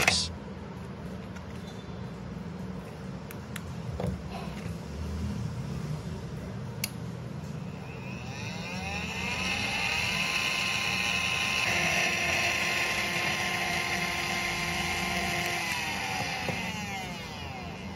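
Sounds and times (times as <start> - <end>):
small motor buzzing and whining: 7.6 - 17.9.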